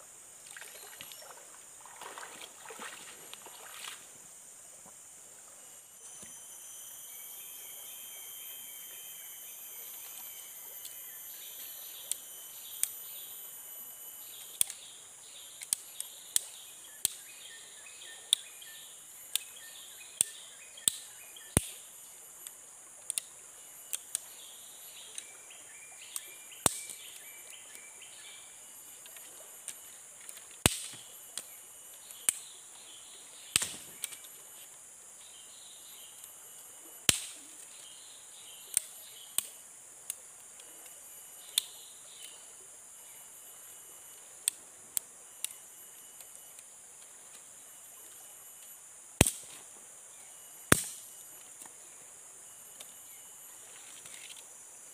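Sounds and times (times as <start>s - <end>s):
high insect drone: 0.0s - 54.9s
wood chopping strikes: 33.6s - 34.2s, 49.2s - 49.6s, 50.7s - 51.1s.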